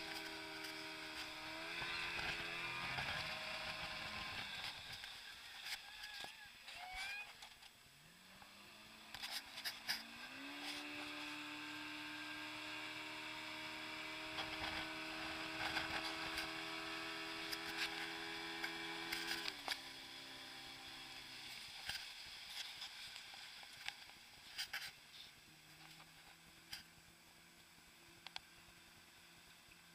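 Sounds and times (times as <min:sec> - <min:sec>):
motorboat engine: 0:00.0 - 0:07.1, 0:08.1 - 0:24.3.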